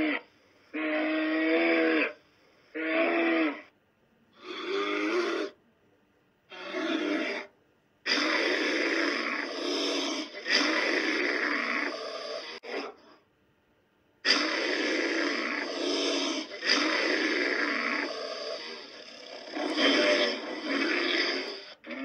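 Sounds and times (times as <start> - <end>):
large animal growling: 8.1 - 13.0, 14.3 - 22.0.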